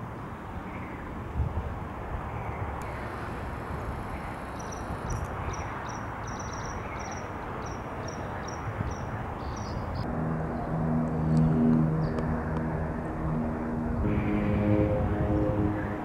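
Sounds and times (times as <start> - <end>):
steady rushing noise: 10.1 - 16.0.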